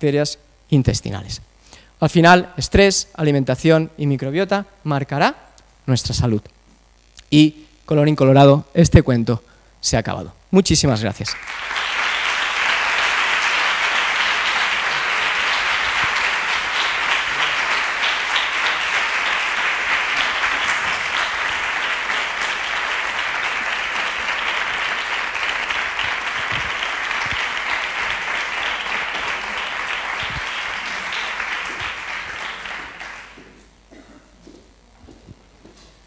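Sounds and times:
audience applause: 0:11.4 - 0:33.6.

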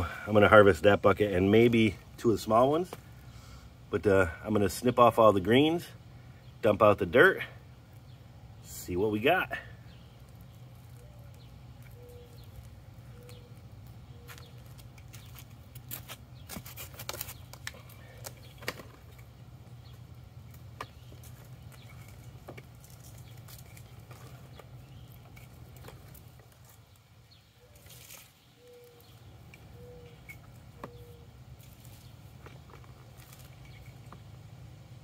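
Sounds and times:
steady low hum: 0:00.0 - 0:35.0
leaves rustling: 0:19.8 - 0:34.7.

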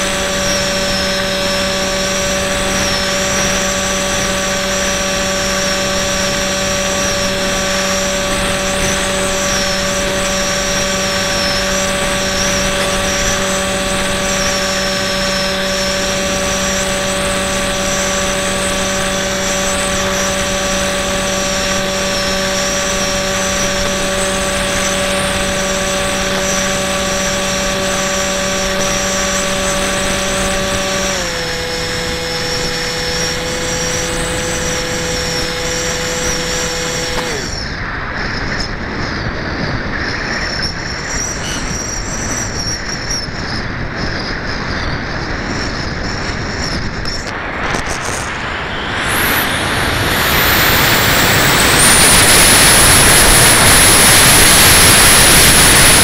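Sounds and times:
high wavering whine: 0:00.0 - 0:56.0
model airplane motor and propeller: 0:00.0 - 0:56.0
wind rushing: 0:34.0 - 0:56.0.

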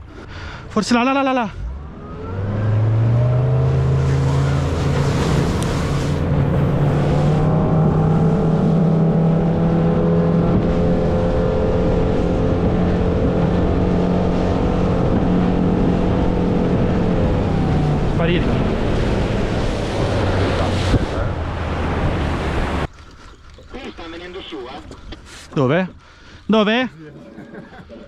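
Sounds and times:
motorboat engine throttling up: 0:01.9 - 0:28.0.

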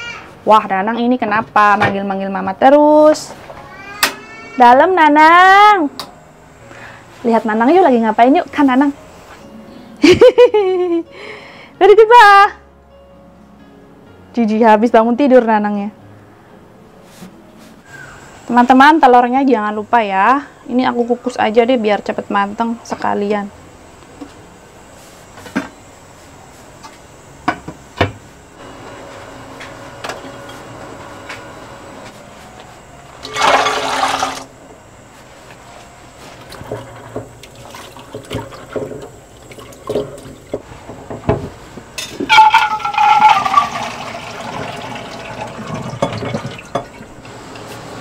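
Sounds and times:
water running into bowl: 0:33.2 - 0:34.5, 0:36.5 - 0:40.4, 0:42.3 - 0:47.3.

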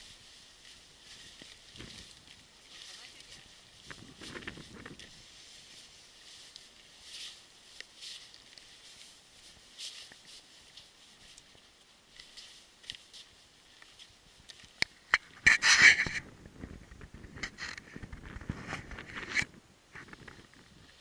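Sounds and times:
footsteps on gravelly ground: 0:00.0 - 0:14.8
loud crunching scrape: 0:15.2 - 0:16.3.

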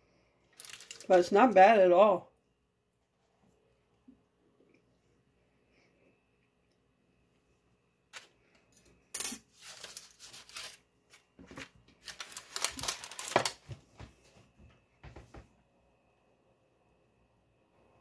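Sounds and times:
parchment paper rustling: 0:00.5 - 0:01.4, 0:09.5 - 0:14.4.

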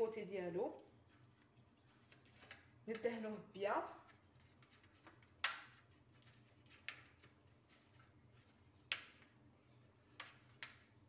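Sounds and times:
brush strokes on metal tray: 0:03.9 - 0:08.8.

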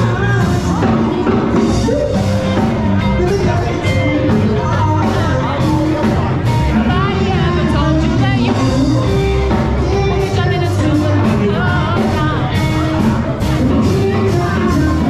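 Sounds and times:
loud dance music: 0:00.0 - 0:15.0
people singing and shouting: 0:00.0 - 0:15.0.

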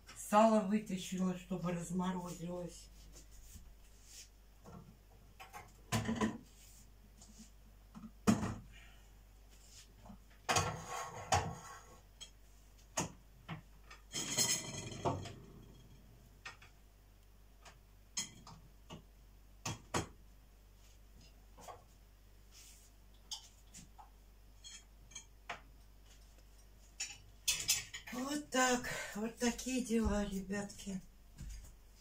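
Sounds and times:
kitchen items knocking and clattering: 0:04.6 - 0:06.5, 0:07.9 - 0:08.7, 0:10.4 - 0:16.8, 0:18.1 - 0:20.2, 0:26.9 - 0:28.2.

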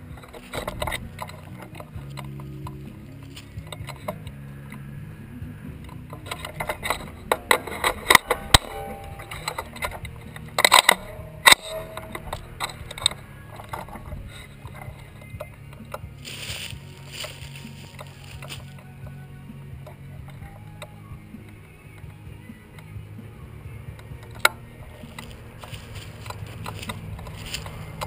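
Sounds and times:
rifle handling clicks and rattles: 0:06.1 - 0:14.1.

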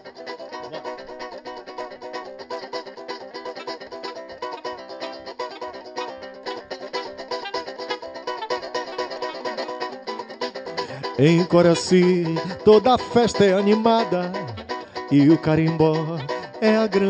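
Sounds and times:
banjo picking melody: 0:00.0 - 0:17.0
saxophone playing: 0:00.6 - 0:01.4, 0:03.4 - 0:11.4, 0:13.6 - 0:16.9.

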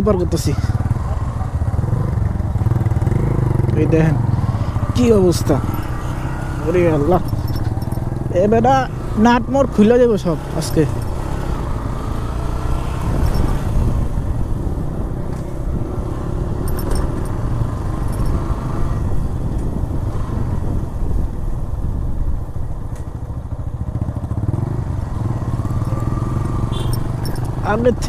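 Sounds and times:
motorcycle engine rumble: 0:00.0 - 0:28.0.

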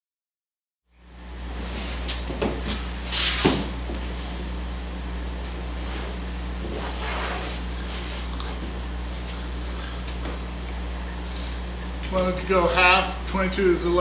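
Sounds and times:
steady low hum: 0:00.9 - 0:14.0
linen rustling: 0:05.4 - 0:10.5.

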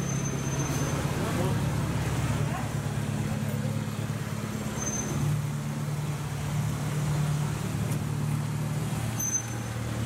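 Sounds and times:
passing cars: 0:00.0 - 0:10.0
vehicle engine droning: 0:00.0 - 0:10.0.

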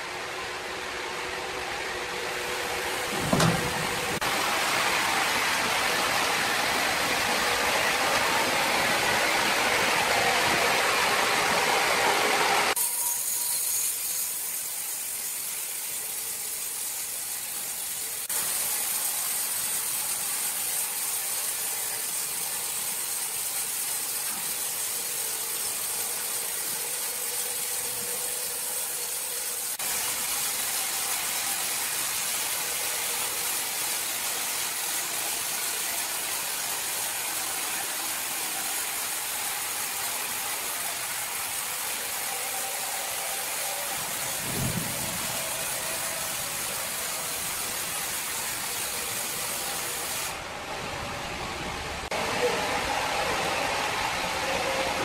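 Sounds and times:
band saw cutting wood: 0:02.4 - 0:04.4, 0:10.8 - 0:50.4
drive motors humming: 0:02.6 - 0:04.2.

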